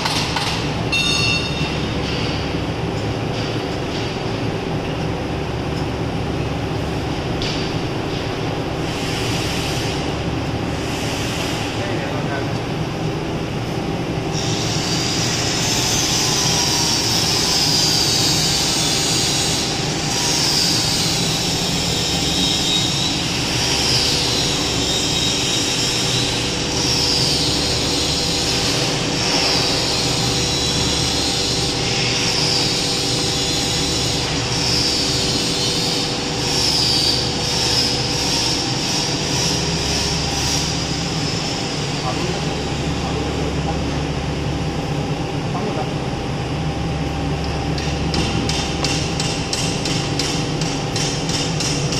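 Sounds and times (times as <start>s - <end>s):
machine hum: 0.0s - 51.9s
high machine squeals: 0.9s - 2.2s, 14.3s - 42.6s.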